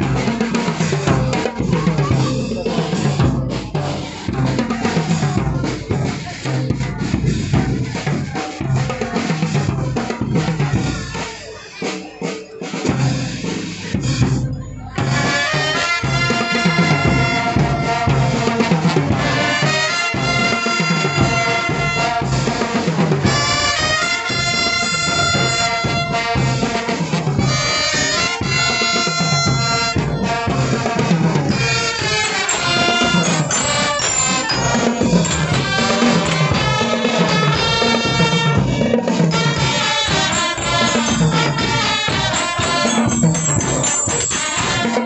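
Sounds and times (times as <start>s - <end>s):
bell lyres: 0.0s - 45.0s
steady drum beat: 0.0s - 45.0s
trumpets and trombones: 14.9s - 45.0s.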